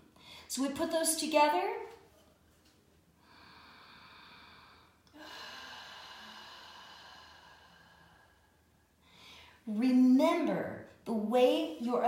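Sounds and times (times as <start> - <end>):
woman breathing slowly: 3.1 - 9.7.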